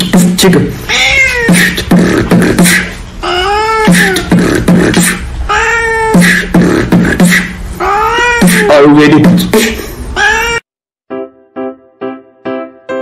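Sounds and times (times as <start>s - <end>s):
beatbox-style beat: 0.0s - 0.7s, 1.3s - 5.4s, 6.0s - 7.6s, 8.2s - 9.9s
cat meowing: 0.9s - 1.8s, 3.2s - 4.3s, 5.5s - 6.3s, 7.8s - 8.9s, 10.1s - 10.6s.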